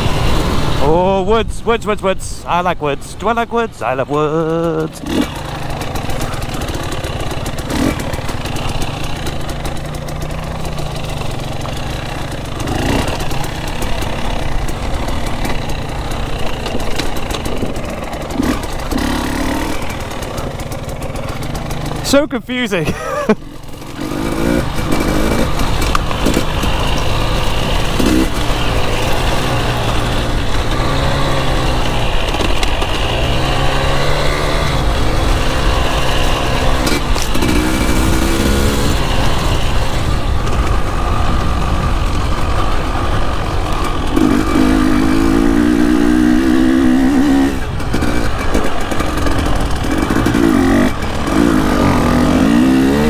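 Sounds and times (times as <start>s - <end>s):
dirt bike engine revving: 0.0s - 53.0s
riding noise rush: 0.0s - 53.0s.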